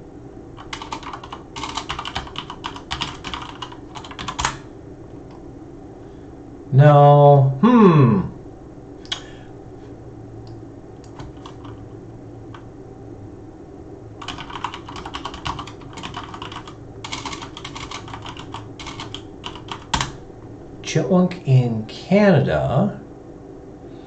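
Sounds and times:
typing on computer keyboard: 0.6s - 4.6s, 11.0s - 11.8s, 14.2s - 20.2s.

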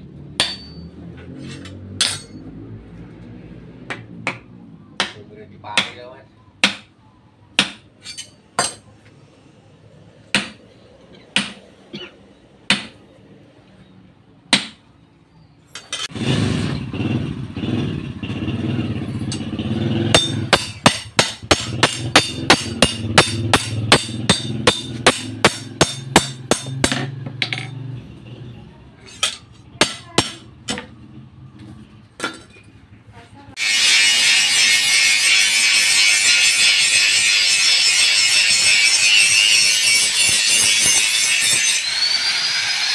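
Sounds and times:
hammer striking blade on anvil: 0.4s - 2.5s, 7.6s - 8.9s, 19.3s - 27.8s, 29.2s - 30.8s.

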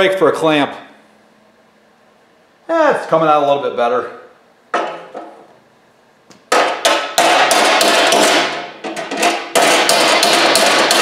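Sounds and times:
hammer striking sheet metal: 6.5s - 11.0s.

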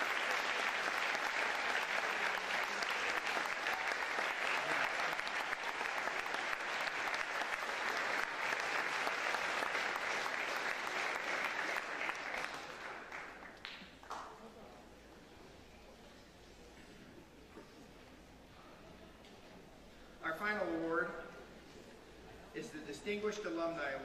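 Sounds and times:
audience applauding: 0.0s - 14.5s.

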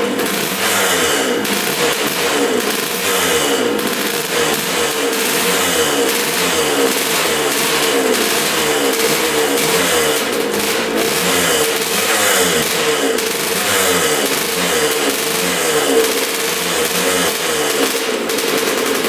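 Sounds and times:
two-stroke motorcycle engine running: 0.0s - 19.0s.

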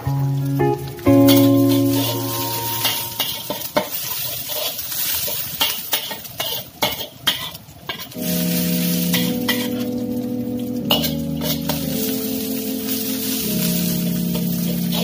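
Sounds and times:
food sizzling in oil: 0.0s - 15.0s
metal spatula scraping a wok: 2.0s - 9.8s.

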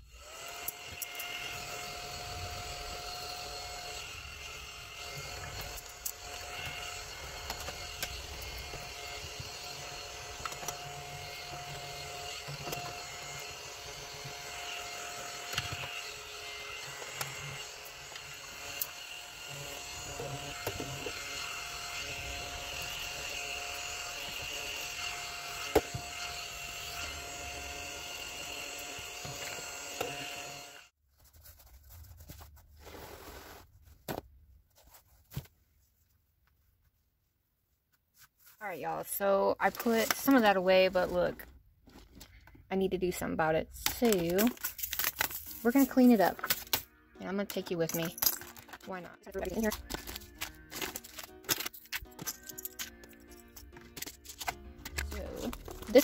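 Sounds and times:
small electric motor whirring: 0.0s - 31.0s.

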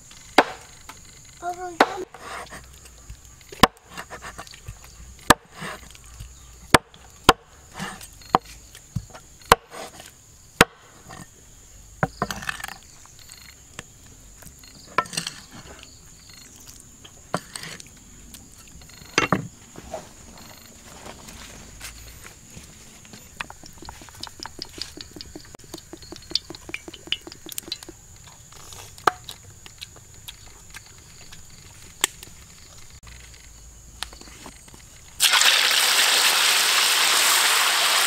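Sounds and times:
knife chopping on wooden board: 0.4s - 0.6s
scraping and handling: 18.9s - 29.1s.

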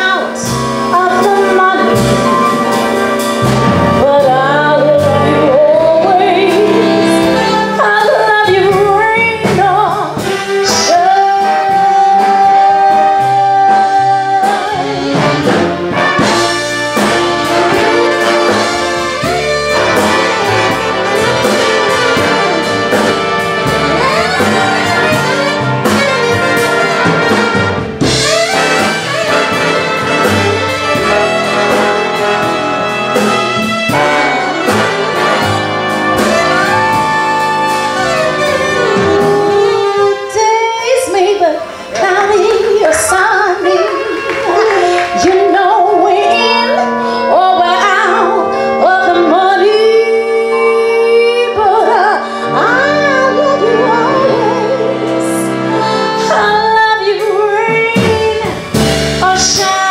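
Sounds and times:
woman singing a ballad: 0.0s - 2.5s, 4.0s - 15.4s, 38.0s - 59.9s
big band brass and saxophones: 0.0s - 59.9s.

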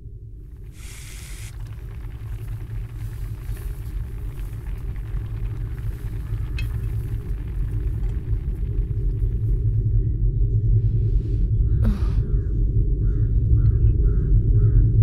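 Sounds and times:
low rumbling drone score: 0.0s - 15.0s.

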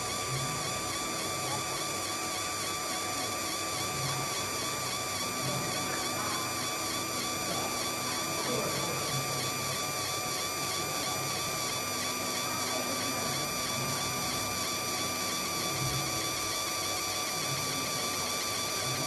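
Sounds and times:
laser machine high whine: 0.0s - 19.0s.

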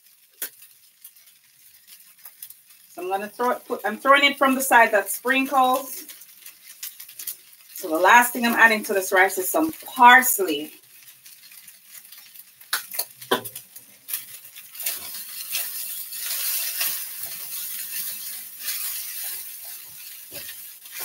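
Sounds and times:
spatula stirring rice in wok: 0.0s - 21.0s.

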